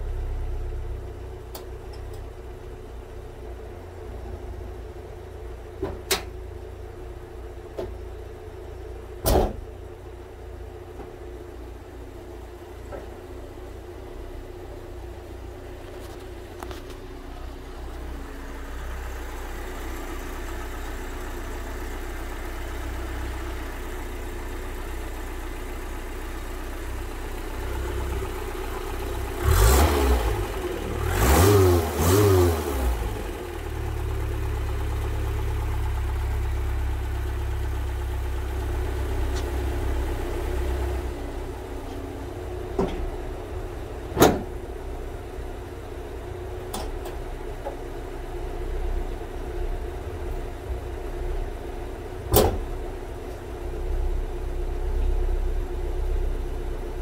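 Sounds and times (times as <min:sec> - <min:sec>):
car engine idling: 0:00.0 - 0:57.0
engine revving: 0:27.7 - 0:33.6.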